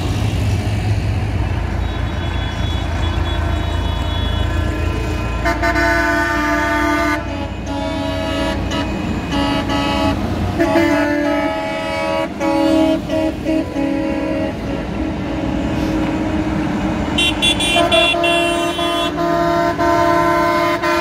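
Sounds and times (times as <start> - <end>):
tractor engines passing: 0.0 - 21.0
vehicle horn blasts: 1.8 - 4.6, 5.4 - 14.9, 17.2 - 21.0.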